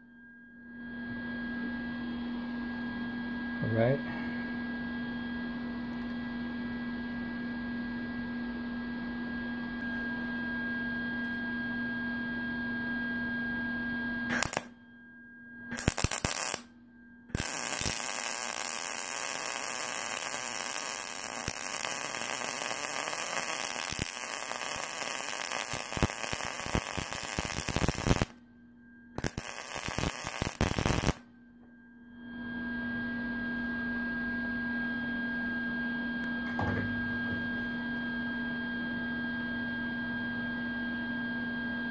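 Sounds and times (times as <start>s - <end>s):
electrical hum: 0.4s - 41.9s
welder arc crackling: 14.3s - 14.7s, 15.7s - 16.7s, 17.3s - 28.4s, 29.2s - 31.2s.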